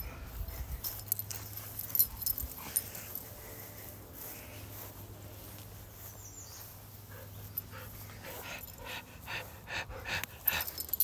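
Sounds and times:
dog panting: 7.0s - 11.0s.

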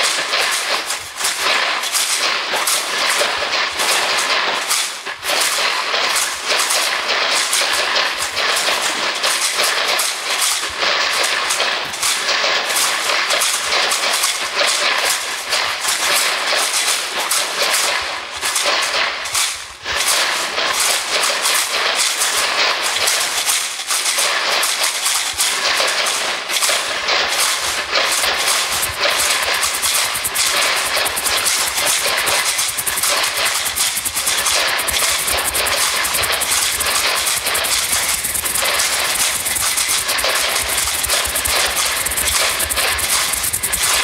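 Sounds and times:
dense static-like crackling: 28.2s - 44.0s.

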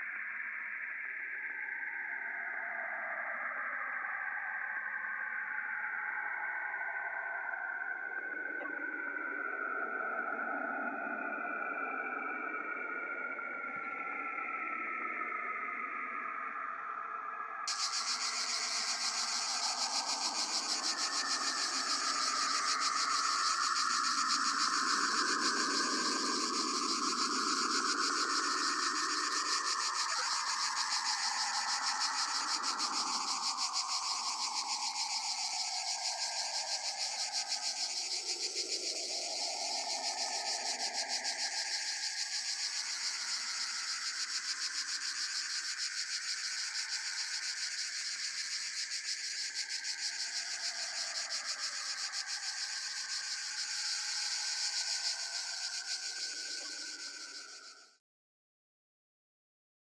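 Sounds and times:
insect chirring: 17.7s - 58.0s.

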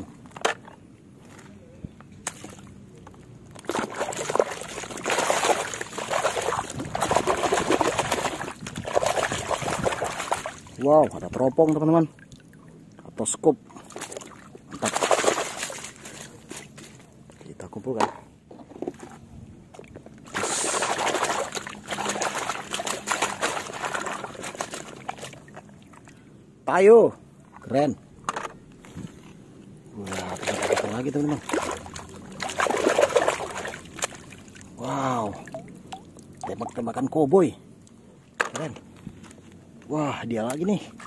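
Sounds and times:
water splashing in a tub: 3.6s - 16.7s, 20.2s - 26.2s, 29.9s - 37.0s
water dripping: 30.1s - 37.0s.

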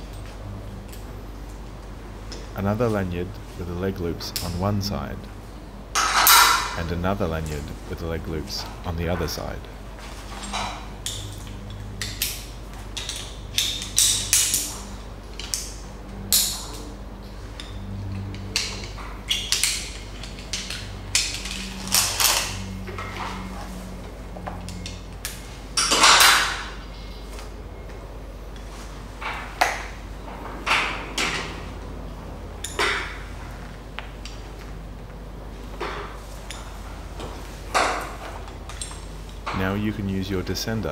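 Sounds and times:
metal carabiners clinking: 6.0s - 6.8s, 17.6s - 23.4s.

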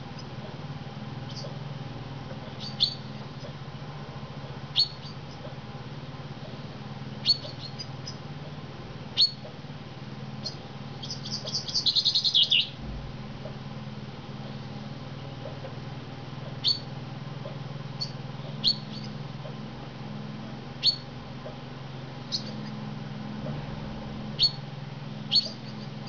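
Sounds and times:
steady low hum: 0.0s - 26.0s
birdsong: 1.2s - 5.7s, 6.4s - 26.0s
bird chirping: 1.3s - 1.6s, 2.4s - 3.5s, 4.7s - 5.5s, 7.2s - 8.2s, 9.2s - 9.5s, 10.4s - 12.8s, 16.5s - 19.2s, 20.8s - 21.1s, 22.2s - 22.8s, 24.4s - 24.6s, 25.3s - 26.0s.

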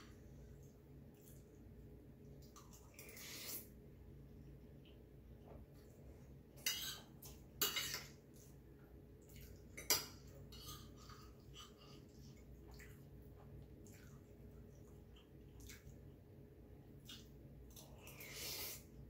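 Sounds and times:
cutlery clinking and scraping on plate: 6.6s - 8.2s, 9.8s - 11.4s.

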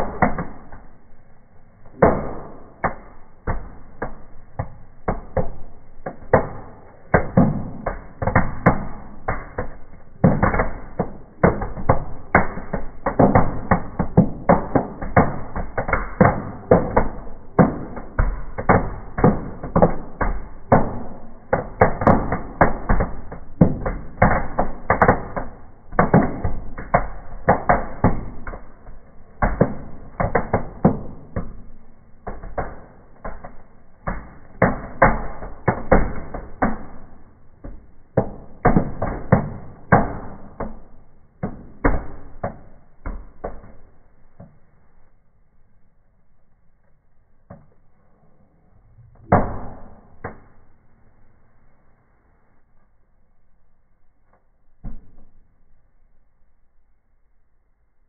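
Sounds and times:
fireworks crackling and popping: 0.0s - 45.2s.

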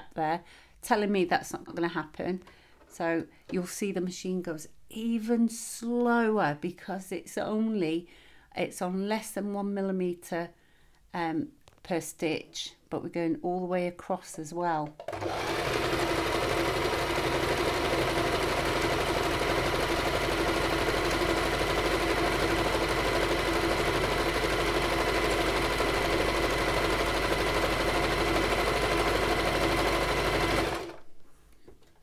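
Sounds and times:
sewing machine running: 15.0s - 31.0s.

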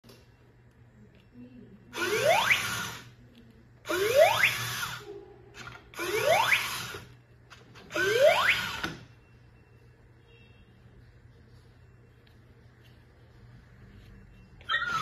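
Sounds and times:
toy electronic rising whoop: 14.7s - 15.0s.

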